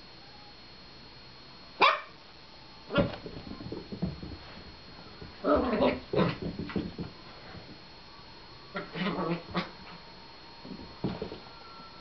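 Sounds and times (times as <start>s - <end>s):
dog barking: 1.8s - 2.2s.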